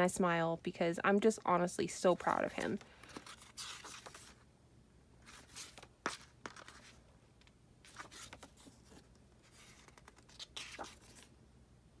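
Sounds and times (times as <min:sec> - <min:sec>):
pages being turned: 0:02.2 - 0:04.4, 0:05.2 - 0:07.0, 0:07.8 - 0:11.3.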